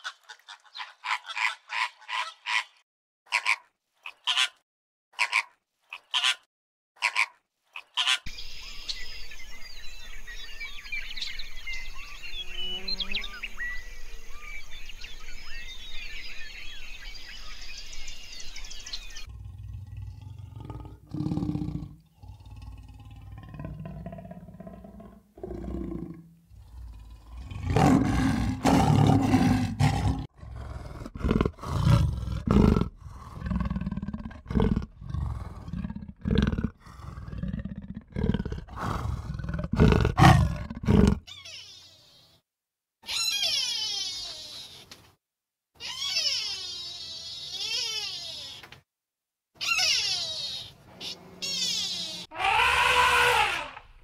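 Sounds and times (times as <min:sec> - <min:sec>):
big cat growling and roaring: 0:19.2 - 0:41.3.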